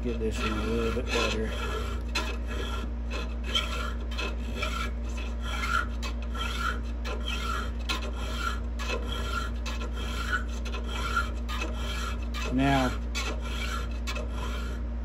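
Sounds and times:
hand file rasping on steel: 0.0s - 14.8s.

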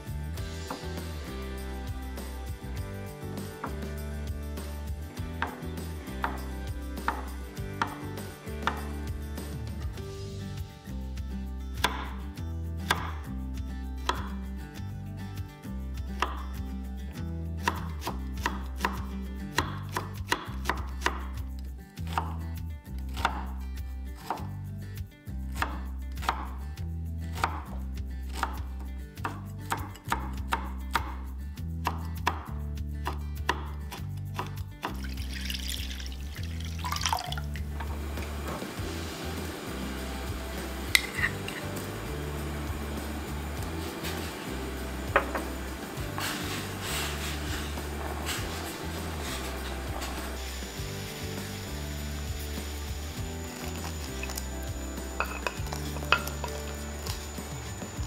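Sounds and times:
knife chopping on wooden board: 5.4s - 5.6s, 7.0s - 8.9s, 11.8s - 12.2s, 12.9s - 13.2s, 14.1s - 14.4s, 17.6s - 19.0s, 19.6s - 21.3s, 27.4s - 27.7s, 45.2s - 46.3s
pot of stock bubbling: 35.0s - 39.2s.

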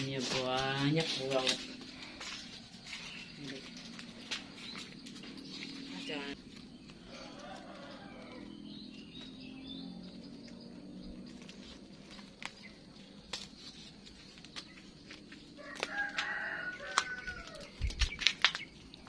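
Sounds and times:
soft outdoor background: 0.0s - 19.0s
rooster crowing: 7.0s - 8.9s, 15.5s - 17.8s.

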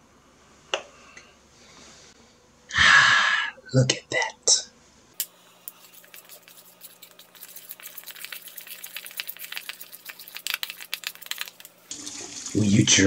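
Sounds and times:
spoon stirring thick sauce: 5.7s - 11.6s.

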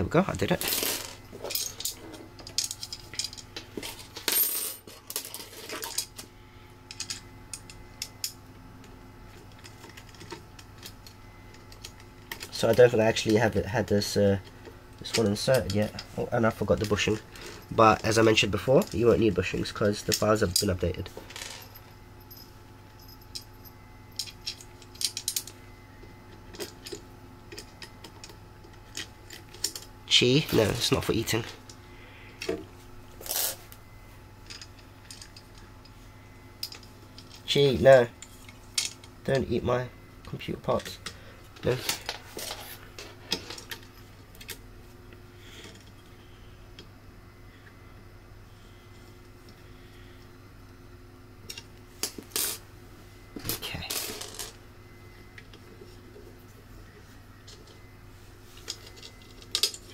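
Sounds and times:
metal parts clattering: 0.5s - 6.2s, 53.5s - 54.6s, 58.6s - 59.9s.

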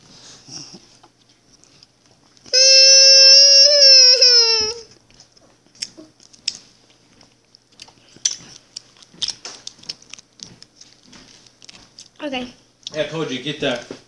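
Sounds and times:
child sucking and chewing candy: 0.1s - 13.0s
held high-pitched tone: 2.5s - 4.9s.

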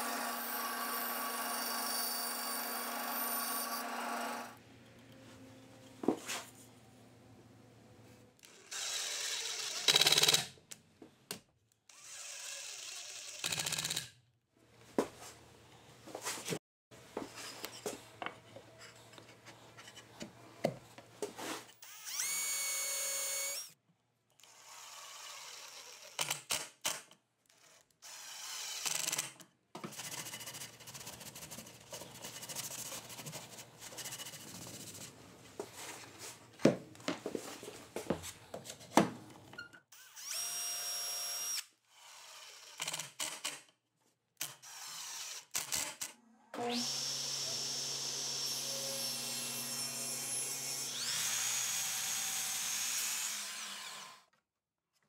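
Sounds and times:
cordless drill driving screws: 11.9s - 13.6s, 21.8s - 23.8s, 40.0s - 43.3s, 46.7s - 54.2s.

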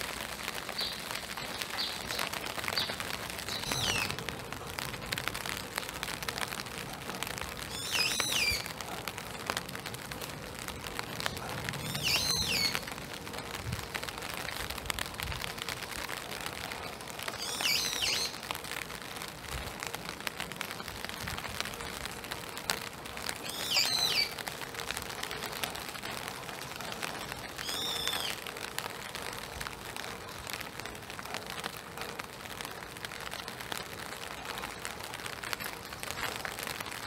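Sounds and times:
rain falling through trees: 0.0s - 37.0s
bird calling: 0.8s - 4.2s, 7.7s - 8.7s, 11.8s - 12.9s, 17.3s - 18.4s, 23.4s - 24.4s, 27.6s - 28.4s.

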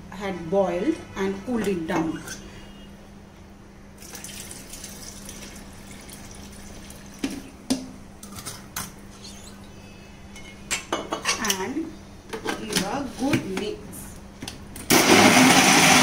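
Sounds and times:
milk pouring into blender jar: 4.0s - 6.9s.

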